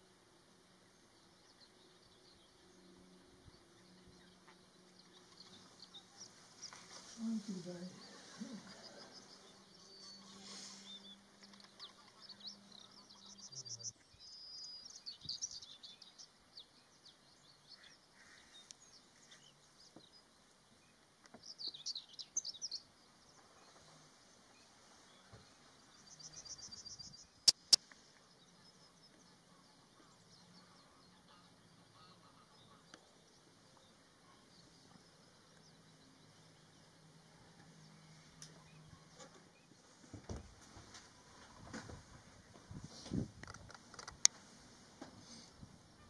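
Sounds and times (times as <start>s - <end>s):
songbirds chirping and trilling: 0.0s - 46.0s
sharp clicks: 27.4s - 27.9s.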